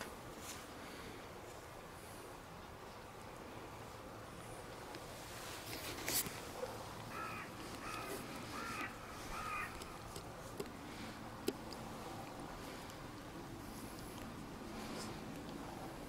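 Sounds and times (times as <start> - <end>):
crow cawing: 7.1 - 10.0.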